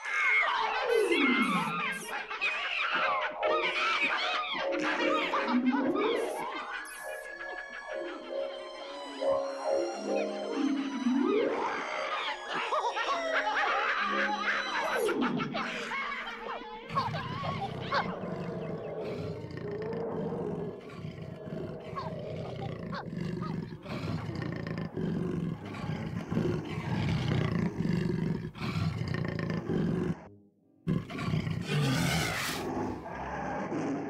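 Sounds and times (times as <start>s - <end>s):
big cats roaring and growling: 16.9s - 30.3s, 30.9s - 34.0s.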